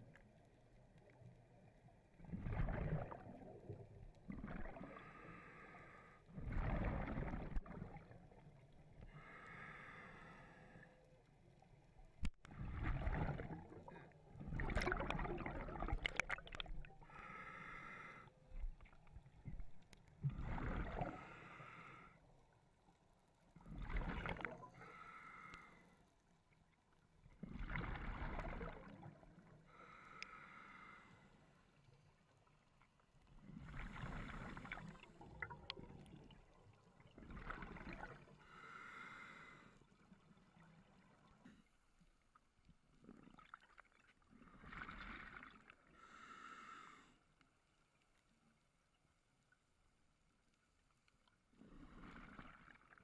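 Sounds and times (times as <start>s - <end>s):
exhaled bubbles rumbling: 2.2s - 5.2s, 6.3s - 8.4s, 12.5s - 17.2s, 18.6s - 21.3s, 23.6s - 24.8s, 27.4s - 29.3s, 33.5s - 38.3s.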